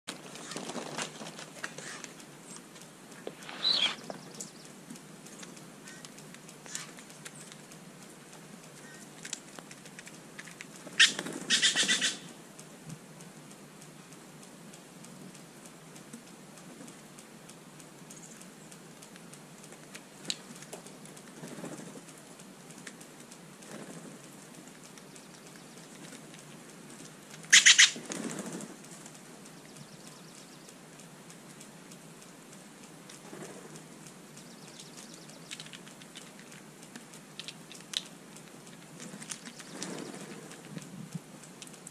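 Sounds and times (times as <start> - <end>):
bird wings flapping: 0.1 - 12.2, 19.0 - 29.3, 33.0 - 41.9
faint ticks: 0.1 - 41.9.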